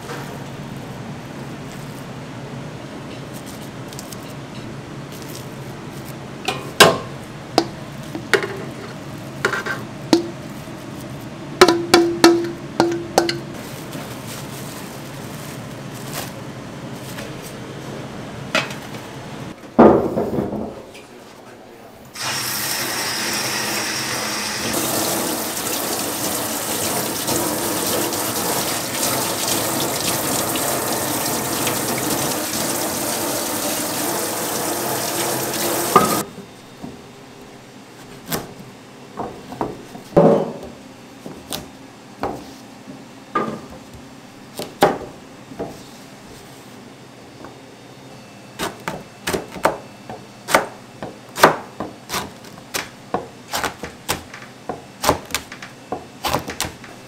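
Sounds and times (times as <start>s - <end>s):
tap running into steel sink: 35.1s - 36.2s.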